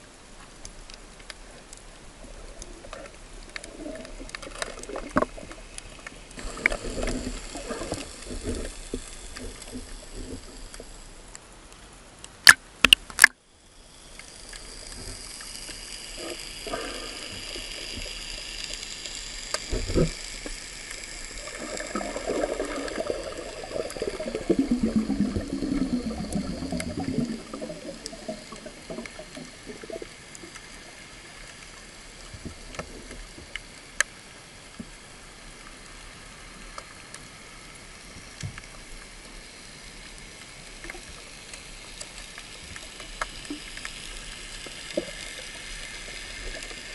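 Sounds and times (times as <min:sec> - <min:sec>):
muffled underwater hiss: 0:00.0 - 0:46.9
faint clicks: 0:00.3 - 0:13.4, 0:14.0 - 0:46.9
water splashes: 0:01.8 - 0:11.3, 0:12.4 - 0:34.6
gurgling bubbles: 0:02.3 - 0:11.0, 0:14.3 - 0:30.7.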